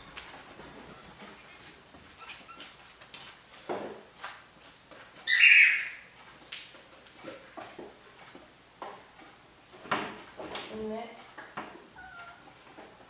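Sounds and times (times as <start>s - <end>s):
cat meowing: 12.0s - 12.5s.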